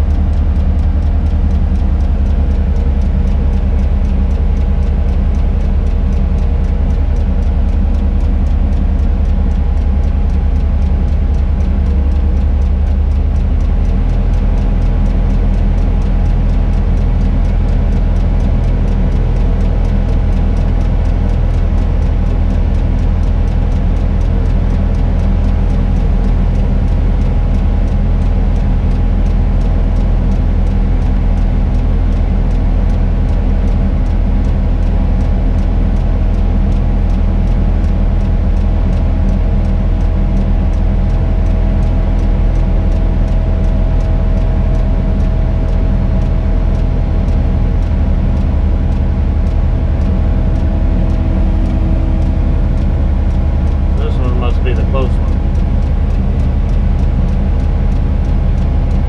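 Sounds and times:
high steady whine: 0:00.0 - 0:14.5, 0:37.7 - 0:59.0.

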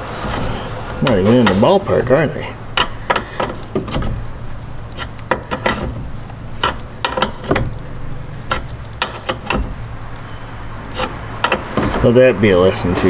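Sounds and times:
steady low hum: 0:00.0 - 0:13.0
wrench clinking on metal fitting: 0:02.8 - 0:04.0, 0:06.6 - 0:07.6.

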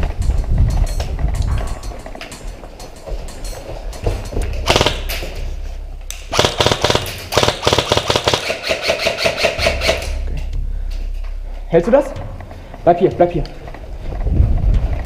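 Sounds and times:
airsoft rifle full-auto bursts: 0:04.7 - 0:05.0, 0:06.3 - 0:10.1.

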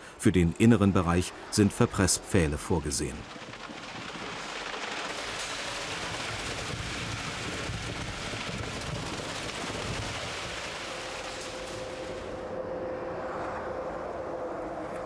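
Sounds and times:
concrete pouring: 0:02.4 - 0:12.3.

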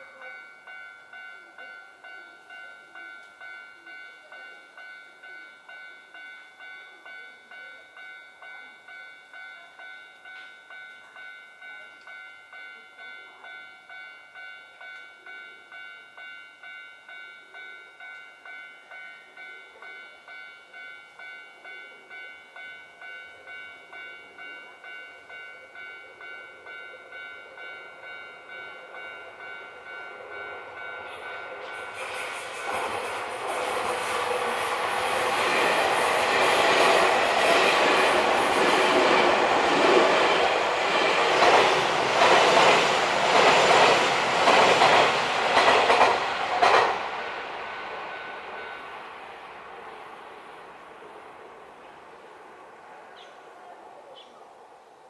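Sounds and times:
level crossing warning bell: 0:00.0 - 0:50.9
approaching train rumble: 0:23.1 - 0:54.2.

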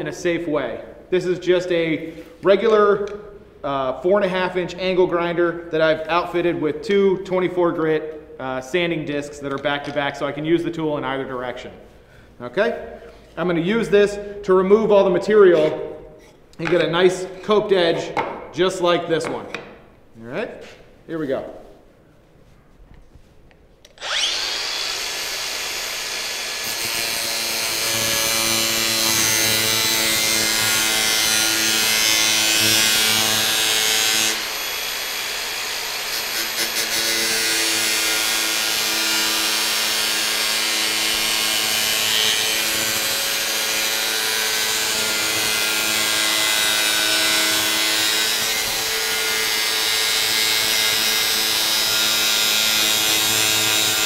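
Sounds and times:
angle grinder motor whine: 0:23.9 - 0:28.5.

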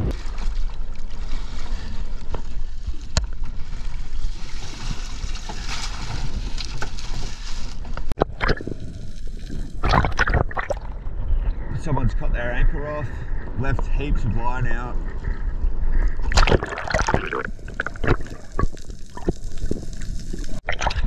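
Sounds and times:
seawater sloshing: 0:00.0 - 0:08.7.

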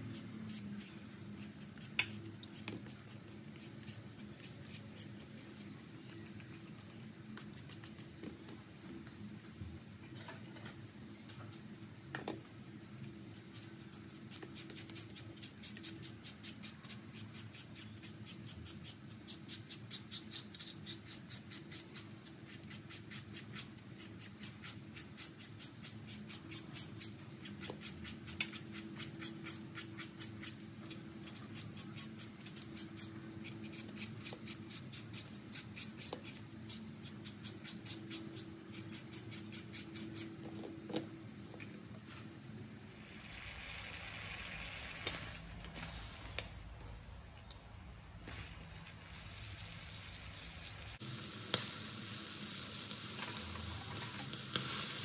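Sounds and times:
peeler scraping mango: 0:13.4 - 0:40.4.

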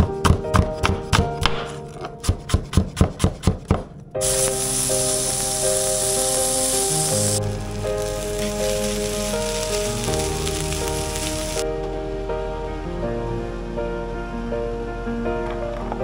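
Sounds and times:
knife chopping onion on wooden board: 0:00.0 - 0:03.9
soft background music: 0:00.0 - 0:16.0
onion sizzling in frying pan: 0:04.2 - 0:11.6.

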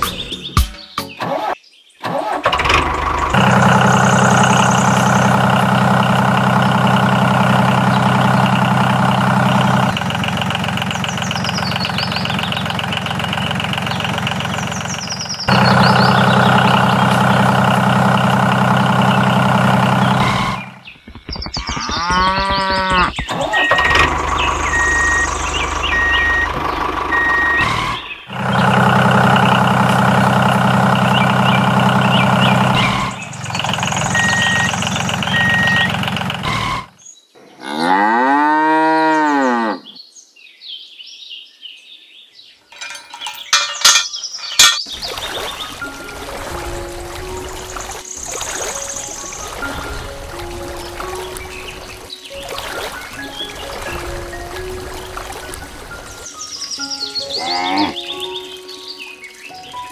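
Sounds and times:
tractor engine running: 0:01.2 - 0:37.0, 0:42.7 - 0:44.9, 0:45.6 - 0:56.3
cow mooing: 0:21.6 - 0:23.2, 0:37.5 - 0:39.9, 0:57.4 - 0:58.0.

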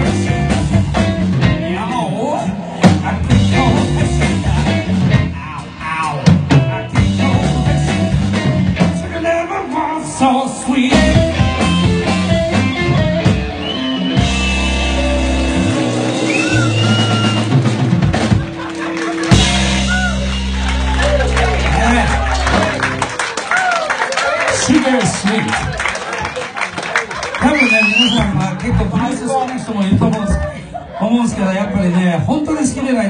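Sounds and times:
blues band playing: 0:00.0 - 0:30.5
busy drumming: 0:02.8 - 0:05.4, 0:06.0 - 0:09.2, 0:10.9 - 0:23.7
bent guitar notes: 0:11.0 - 0:23.2.

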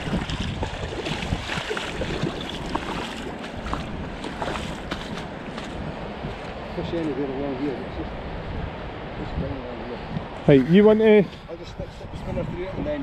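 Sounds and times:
fast-flowing river rushing: 0:00.0 - 0:09.2
wind buffeting microphone: 0:00.0 - 0:13.0.

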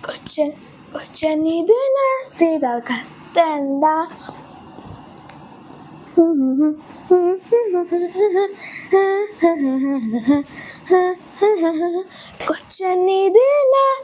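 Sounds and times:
high-pitched voice singing: 0:06.2 - 0:14.0.

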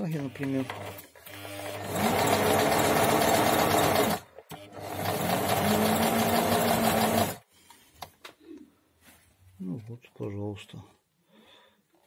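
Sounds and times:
sewing machine stitching: 0:00.2 - 0:07.4.

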